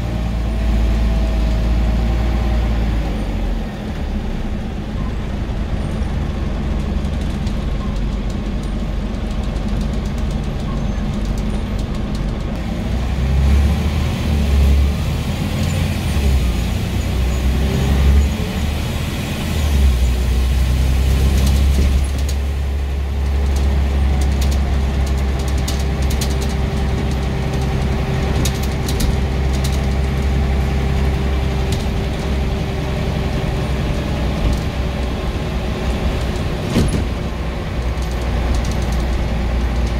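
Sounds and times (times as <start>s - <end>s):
bus diesel engine running: 0.0s - 39.9s
light rattles: 5.8s - 12.6s, 21.2s - 39.9s.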